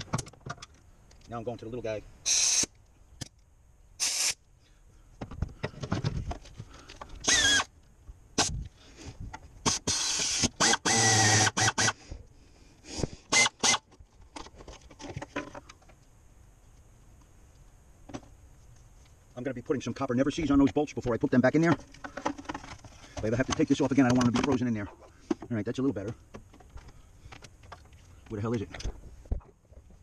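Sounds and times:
air ratchet bursts: 2.2 - 2.8, 4.0 - 4.4, 7.2 - 7.7, 9.6 - 12.0, 13.3 - 13.9.

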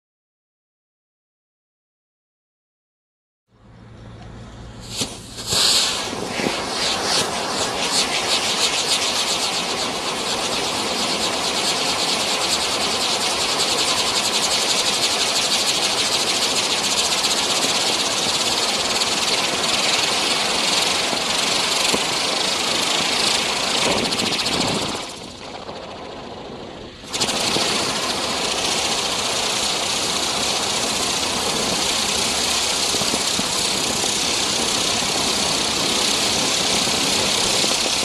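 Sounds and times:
firework pops: 4.8 - 9.3, 21.8 - 22.2
firework hissing and crackling: 4.8 - 38.0.

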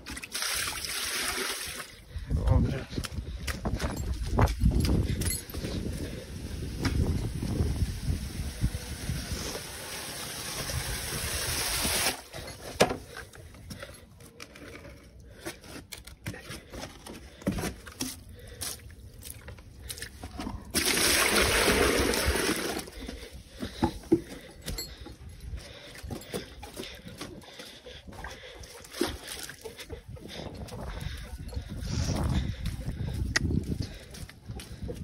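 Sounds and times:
water spraying: 6.3 - 12.3.

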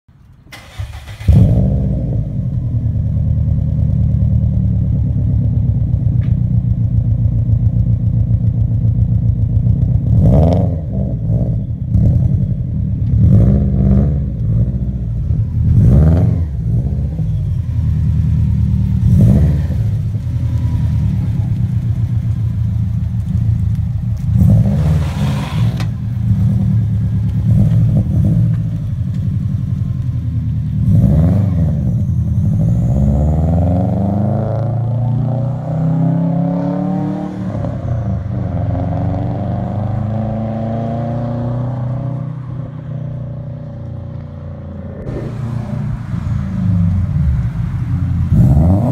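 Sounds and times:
car engine starting and idling: 0.1 - 48.9
engine revving: 0.5 - 2.6, 10.0 - 12.4, 13.0 - 17.4, 18.0 - 21.6, 23.0 - 28.8, 30.8 - 48.9.

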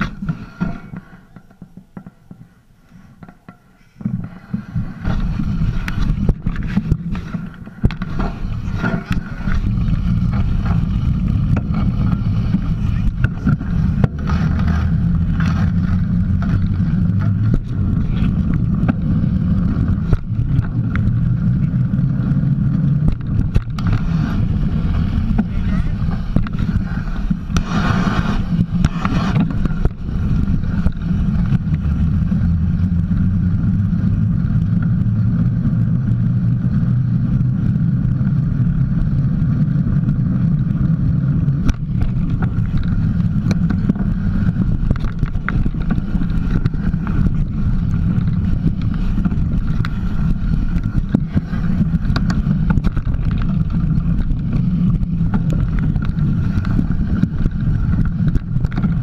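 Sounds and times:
bike clicks and rattles: 0.0 - 59.0
tyres and wind rumble: 0.0 - 59.0.

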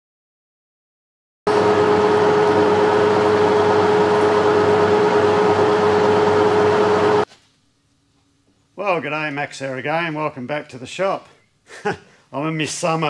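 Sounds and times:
machine humming: 1.5 - 7.3.

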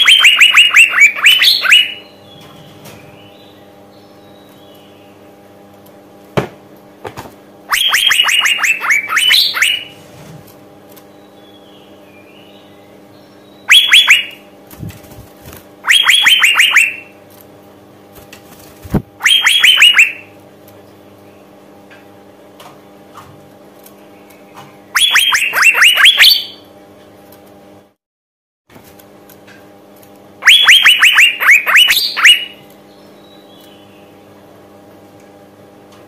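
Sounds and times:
bird calling sharp falling notes: 0.0 - 2.1, 7.7 - 10.0, 13.7 - 14.4, 15.8 - 17.1, 19.2 - 20.3, 25.0 - 26.6, 30.4 - 32.6
steady low hum: 0.0 - 28.0.

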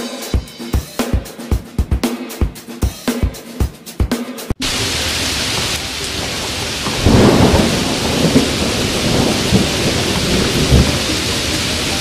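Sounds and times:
heavy rain: 4.6 - 12.0
thunder rumbling: 4.6 - 12.0.

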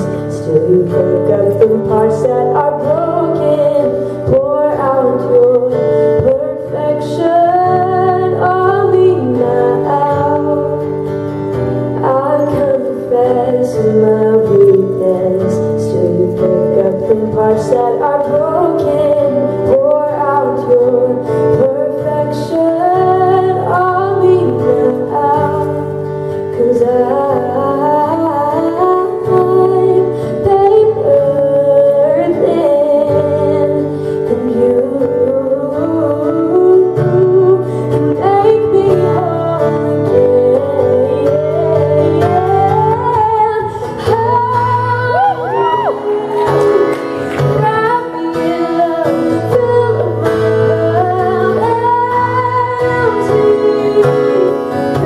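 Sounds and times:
woman singing worship song: 0.0 - 11.0, 12.0 - 55.0
acoustic guitar: 0.0 - 55.0.

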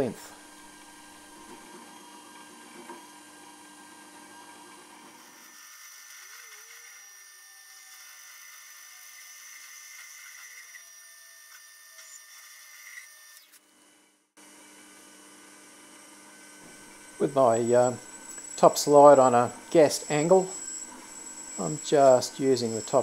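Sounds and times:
metal lathe motor whine: 14.4 - 23.0.

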